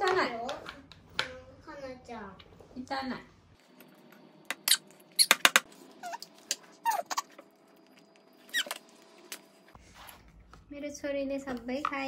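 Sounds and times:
baby squealing: 0:06.8 - 0:07.3.

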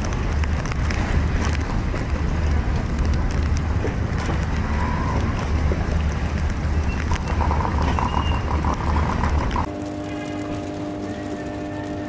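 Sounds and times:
storm wind buffeting microphone: 0:00.0 - 0:09.7.

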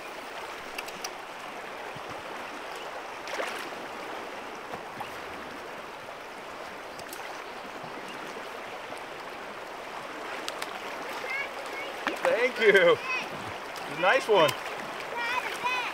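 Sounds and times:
river rushing over rocks: 0:07.9 - 0:15.9.

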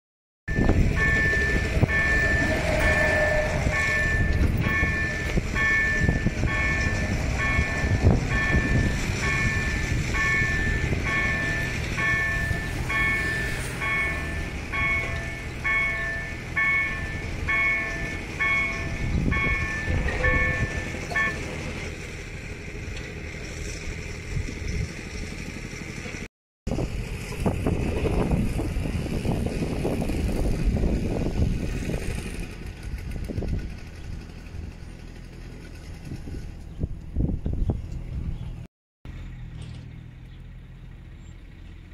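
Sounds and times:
level crossing warning bell: 0:00.5 - 0:21.9.

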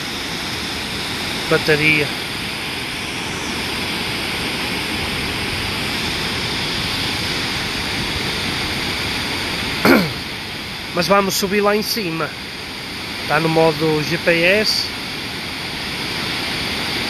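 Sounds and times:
waterfall rushing: 0:00.3 - 0:02.6.

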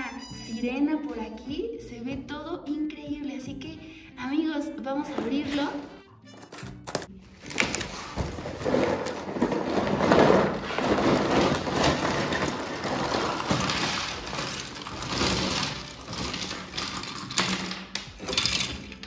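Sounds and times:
cardboard box crackling and scraping: 0:07.4 - 0:17.2
contents rustling inside box: 0:07.4 - 0:18.7.

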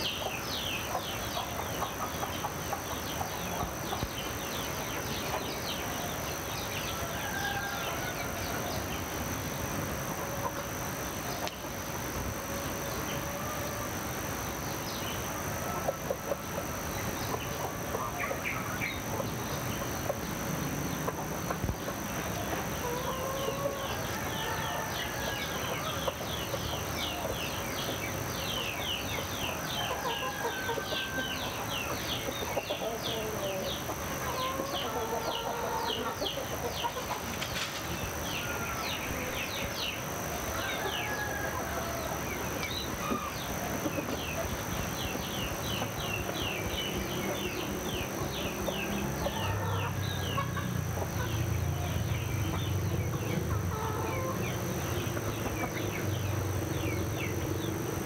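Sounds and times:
chickens calling: 0:00.0 - 0:58.0
small birds chirping: 0:00.0 - 0:58.0
steady high-pitched whine: 0:00.0 - 0:58.0.

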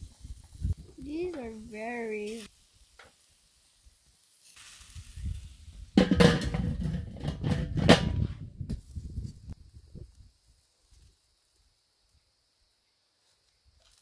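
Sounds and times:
metal grill lid clanking: 0:06.0 - 0:08.2.

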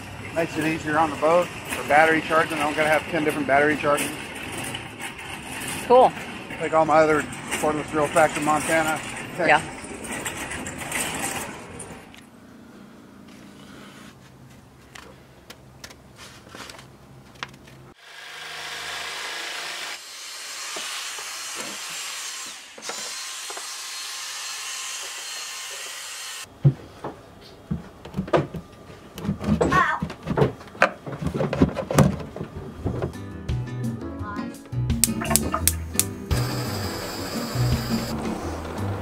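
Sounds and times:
shop vacuum running: 0:36.3 - 0:39.0.

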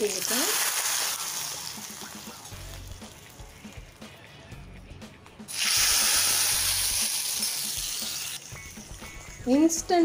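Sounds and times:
spices sizzling in hot ghee: 0:00.0 - 0:04.2, 0:05.5 - 0:10.0
soft background music with beat: 0:00.9 - 0:10.0.

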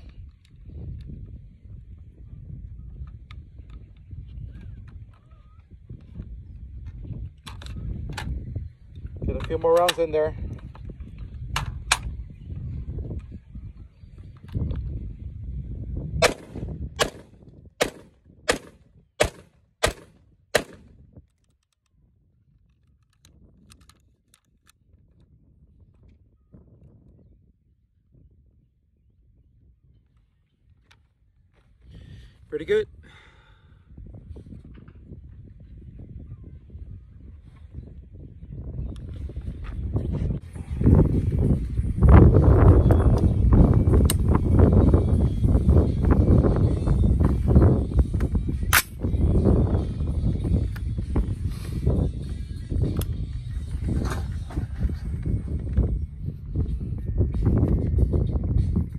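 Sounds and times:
wind buffeting microphone: 0:00.0 - 0:58.9
semi-automatic gunshots: 0:16.2 - 0:20.9.

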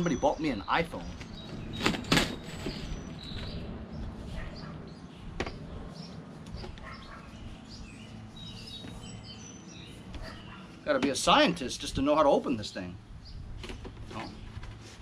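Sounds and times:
faint birds chirping: 0:00.0 - 0:15.0
steady low hum: 0:00.4 - 0:11.0.

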